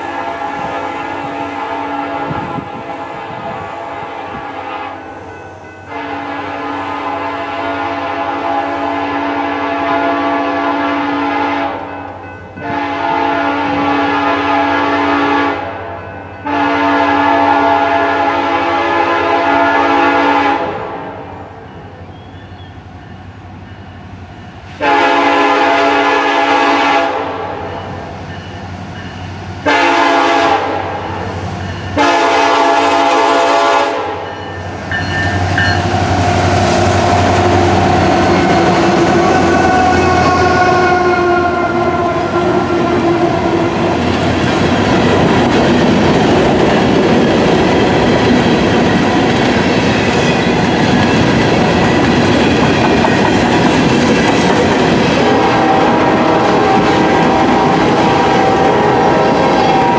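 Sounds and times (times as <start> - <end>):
locomotive air horn blasts: 0.0 - 11.9, 12.6 - 21.3, 24.8 - 27.8, 29.6 - 34.4, 35.3 - 44.2, 55.1 - 59.9
train engine passing: 0.0 - 59.9
train wheels on rails: 0.0 - 59.9.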